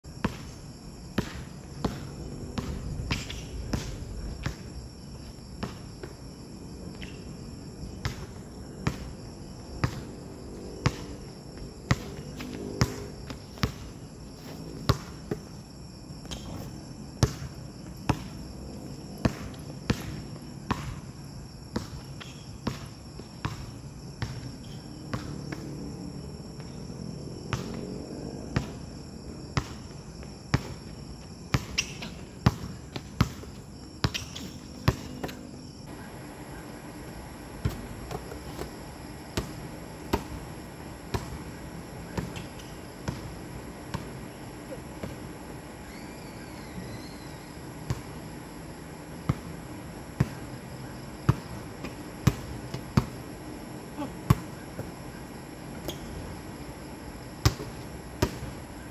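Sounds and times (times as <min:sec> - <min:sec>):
insects chirring: 0:00.0 - 0:58.9
basketball bouncing on hard court: 0:08.0 - 0:09.1, 0:11.9 - 0:14.0, 0:14.9 - 0:15.6, 0:31.5 - 0:35.4, 0:37.6 - 0:38.8, 0:47.9 - 0:48.1, 0:51.3 - 0:53.2, 0:57.4 - 0:58.5.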